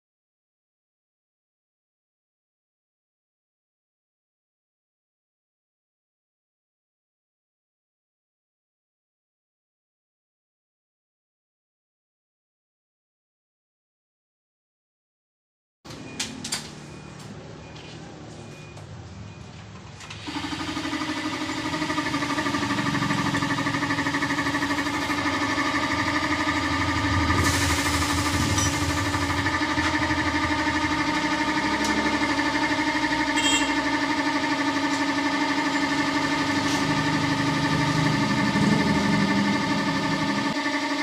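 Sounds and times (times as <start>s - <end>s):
air compressor running: 20.0s - 41.0s.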